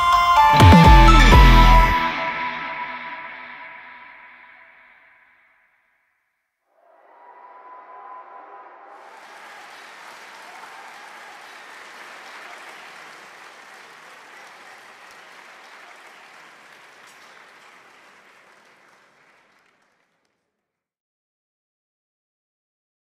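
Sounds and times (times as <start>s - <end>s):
large audience applause: 7.2s - 20.3s.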